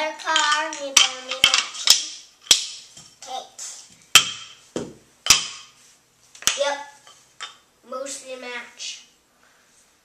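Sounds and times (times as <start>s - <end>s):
child's voice: 0.0s - 2.1s, 3.2s - 3.9s, 6.5s - 7.0s, 7.8s - 9.2s
small objects tapping on floor: 0.3s - 3.2s.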